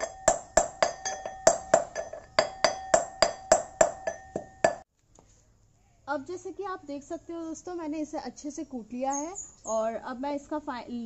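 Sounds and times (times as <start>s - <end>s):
metal pestle pounding in mortar: 0.0s - 4.8s.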